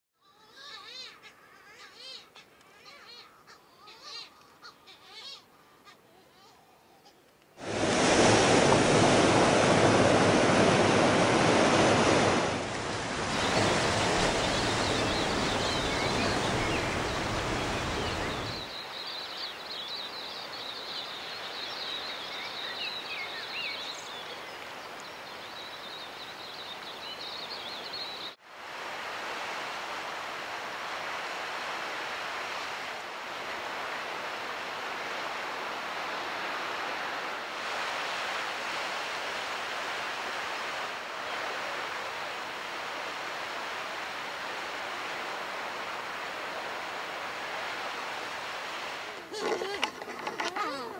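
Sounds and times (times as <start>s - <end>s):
wavering seabird calls: 0.2s - 7.2s
surf breaking on rocky shore: 7.6s - 18.8s
high chirping bird calls: 13.4s - 19.0s.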